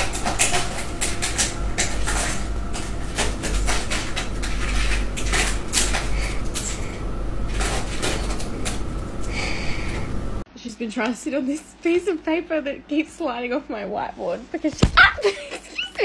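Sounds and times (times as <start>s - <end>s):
steady low hum: 0.0s - 10.7s.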